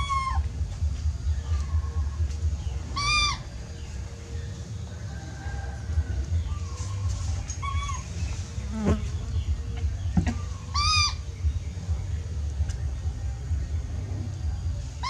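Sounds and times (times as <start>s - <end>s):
baby monkey crying: 0.0s - 0.5s, 2.9s - 3.6s, 7.6s - 8.2s, 10.3s - 11.3s
steady low hum: 0.0s - 15.0s.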